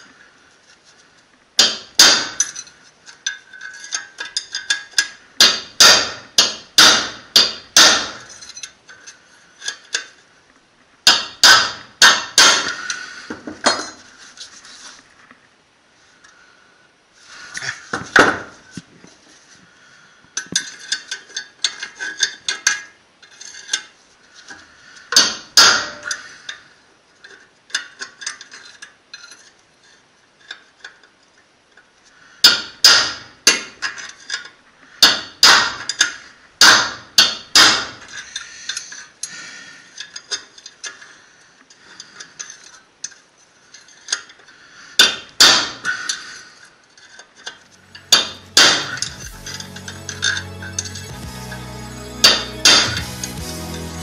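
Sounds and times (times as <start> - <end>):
hammer blows on metal: 48.0 - 54.0.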